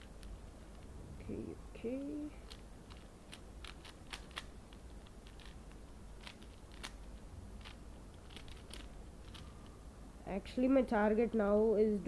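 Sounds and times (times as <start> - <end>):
puzzle cube layers clicking: 2.4 - 9.5.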